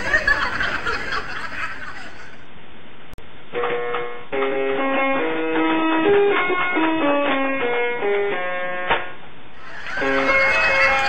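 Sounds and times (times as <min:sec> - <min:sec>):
steady noisy hiss: 0:00.0 - 0:08.0.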